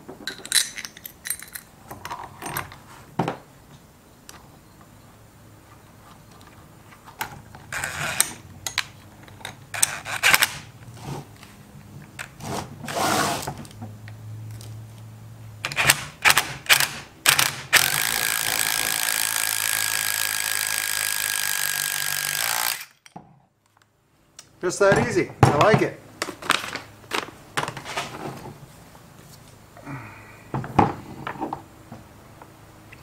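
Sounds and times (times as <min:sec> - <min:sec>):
socket and wrench clatter: 0:00.2 - 0:02.8
impact wrench whining: 0:07.7 - 0:08.4, 0:09.7 - 0:11.2, 0:15.6 - 0:23.1.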